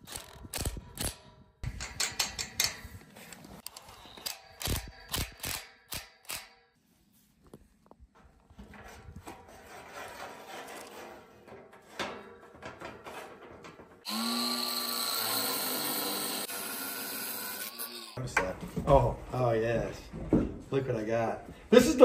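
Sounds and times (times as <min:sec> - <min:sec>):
steel panels clanking: 0:01.6 - 0:03.0, 0:08.6 - 0:14.1.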